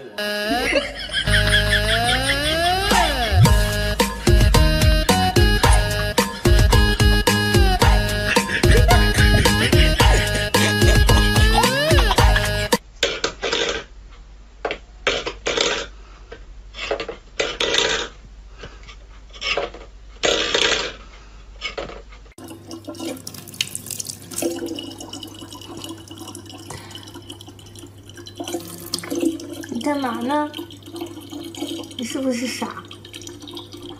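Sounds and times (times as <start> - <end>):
faucet running into plastic bottle: 22.4 - 33.9.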